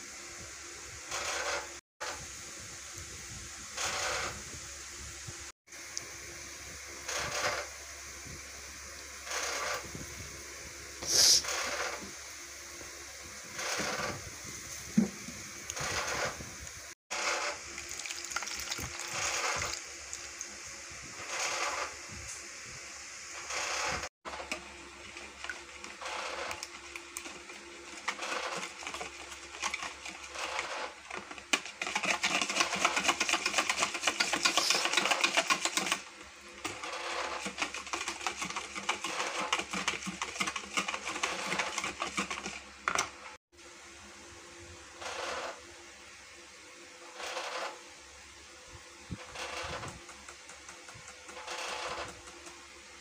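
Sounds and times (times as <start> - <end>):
whisk beating in plastic bowl: 24.4 - 43.1.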